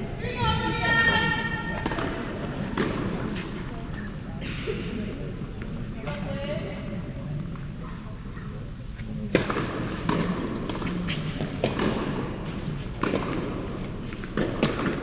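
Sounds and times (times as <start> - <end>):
tennis balls knocking: 9.3 - 15.0.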